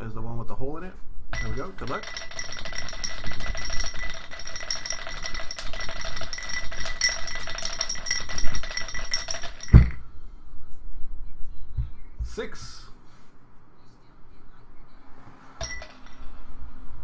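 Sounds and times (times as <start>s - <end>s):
dice rattling in a glass: 1.4s - 10.0s, 15.6s - 16.3s
glass thump: 4.8s - 10.0s.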